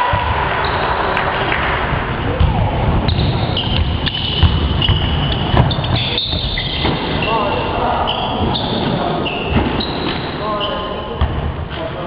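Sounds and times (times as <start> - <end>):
crowd voices: 0.0 - 12.0
basketball bouncing on court: 2.4 - 7.2
shoe squeaks: 3.1 - 11.2.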